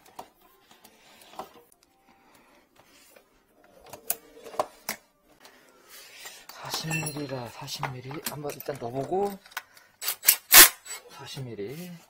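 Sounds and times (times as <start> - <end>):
cable and tools clicking: 8.0 - 11.0.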